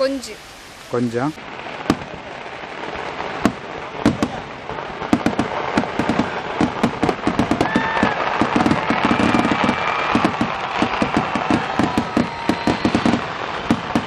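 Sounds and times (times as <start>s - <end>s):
fireworks bangs and crackling: 0.0s - 14.0s
fireworks whistling: 0.0s - 14.0s.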